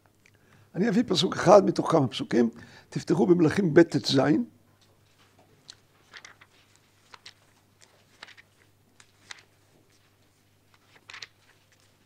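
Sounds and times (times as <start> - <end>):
book pages rustling: 5.0 - 12.0.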